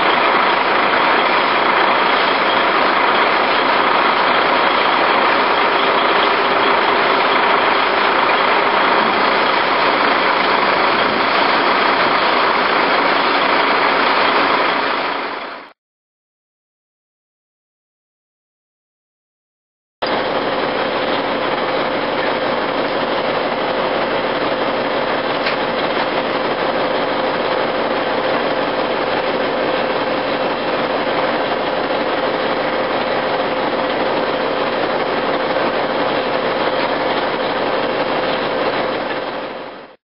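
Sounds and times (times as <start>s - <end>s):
constant whine: 0.0s - 15.7s
heavy diesel engine running: 0.0s - 15.7s, 20.0s - 40.0s.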